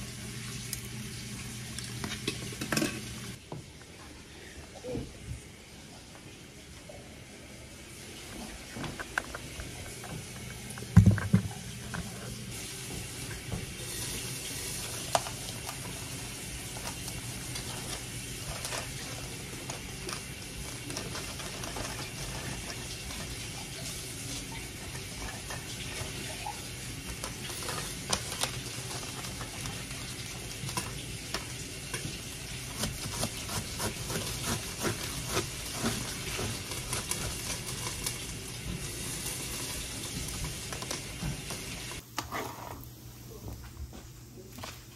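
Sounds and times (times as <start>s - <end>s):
steady kitchen hiss: 0.0s - 44.9s
utensils clinking: 1.8s - 3.4s.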